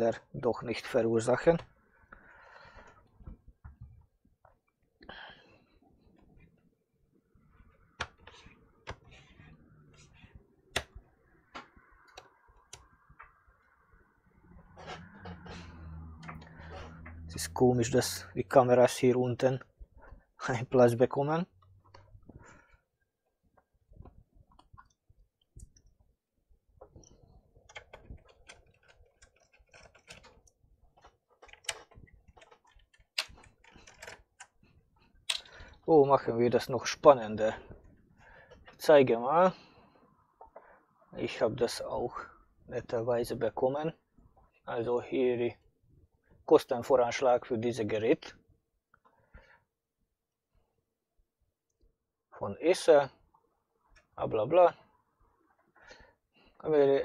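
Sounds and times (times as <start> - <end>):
soft plastic scraping: 7.4 - 17.6, 26.8 - 35.9
plastic clips clicking loose: 31.4 - 34.6.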